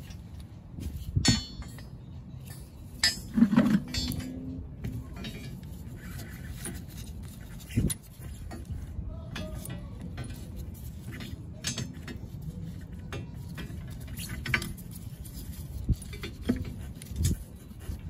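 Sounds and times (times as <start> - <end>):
metal tool clinking on spring: 1.2 - 6.8.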